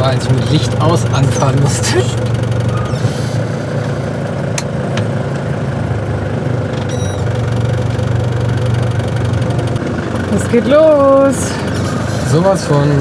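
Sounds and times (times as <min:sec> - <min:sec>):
engine idling: 0:00.0 - 0:13.0
brief high squeak: 0:02.7 - 0:03.5, 0:06.9 - 0:07.3.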